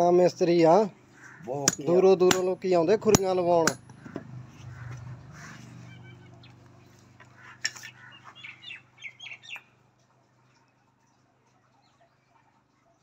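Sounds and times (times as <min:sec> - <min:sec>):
hammer tapping horseshoe nails: 0:01.6 - 0:04.2.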